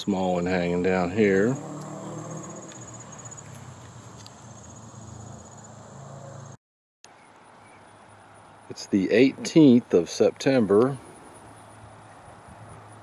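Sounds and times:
insects trilling: 0.0 - 6.6
steady outdoor hiss: 0.0 - 13.0.

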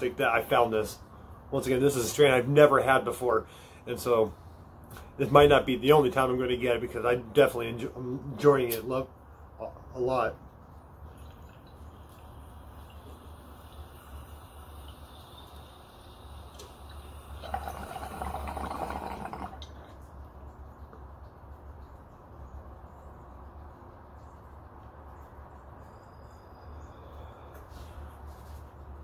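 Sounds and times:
water bubbling in a bong: 11.0 - 22.6.

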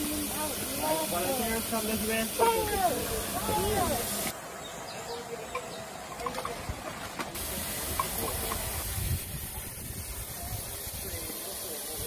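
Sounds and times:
steam hissing: 0.0 - 4.4, 7.4 - 12.0.

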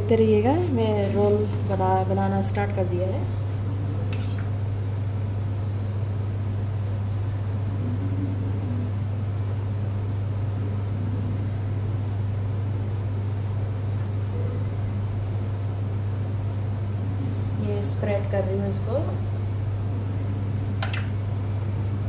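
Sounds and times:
low motor hum: 0.0 - 22.0.

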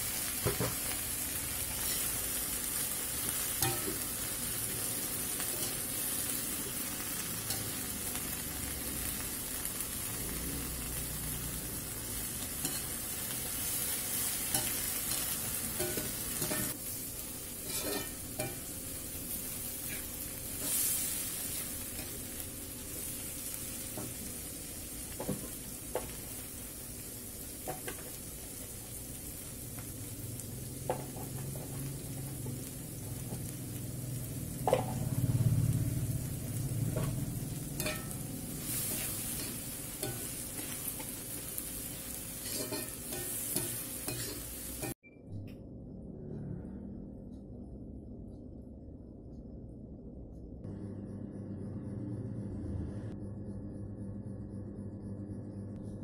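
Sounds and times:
vegetables sizzling in a wok: 0.0 - 45.0
metal spatula scraping wok: 1.6 - 2.8, 12.2 - 22.4, 36.6 - 45.0.

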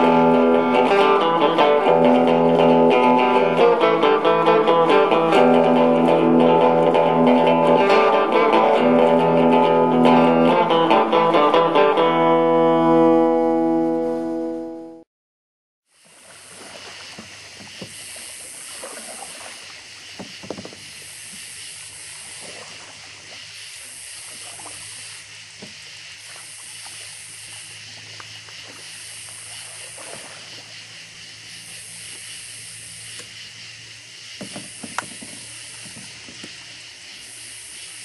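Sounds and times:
night insects calling: 0.0 - 12.5, 15.9 - 38.0
kayak paddle splashing: 15.9 - 38.0
paddle knocking against hull: 16.5 - 21.5, 25.6 - 26.4, 34.4 - 36.6.

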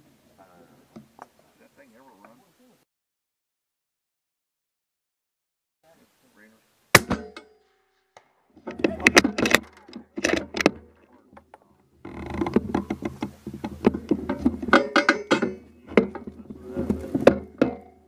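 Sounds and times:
suppressed rifle shot: 7.0 - 7.4.

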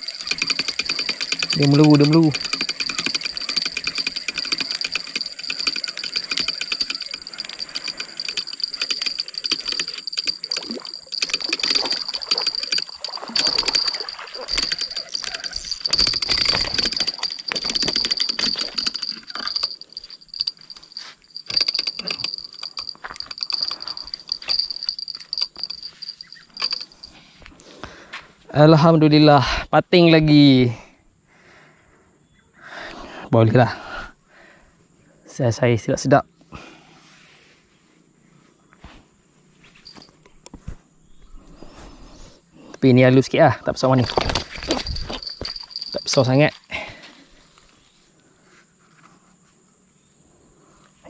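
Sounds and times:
fishing reel clicking: 0.0 - 27.2, 44.1 - 46.4.

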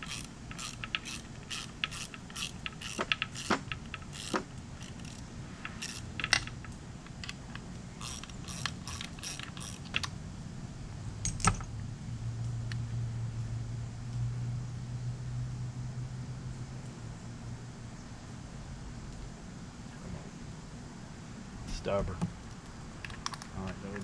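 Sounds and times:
ratchet wrench clicking: 0.0 - 6.7, 8.0 - 10.1.

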